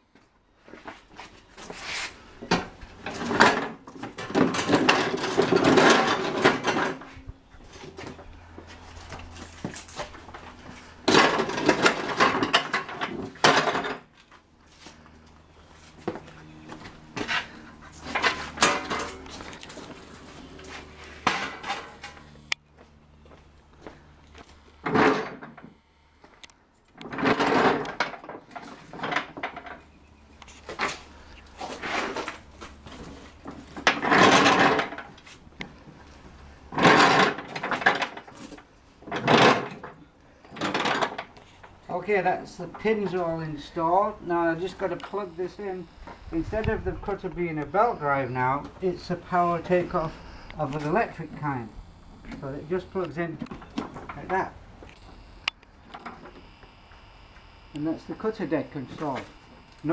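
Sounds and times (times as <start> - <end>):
metal clattering and scraping: 1.6 - 14.1, 16.9 - 22.3, 31.6 - 35.4, 36.7 - 40.0.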